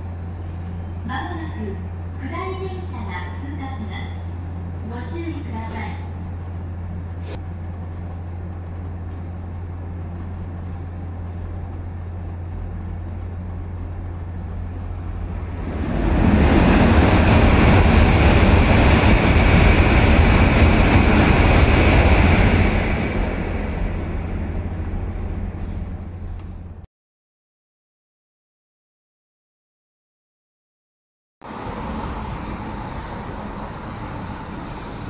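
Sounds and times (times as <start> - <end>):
low steady hum: 0.0 - 18.0
train rushing past: 0.0 - 26.7, 31.4 - 35.0.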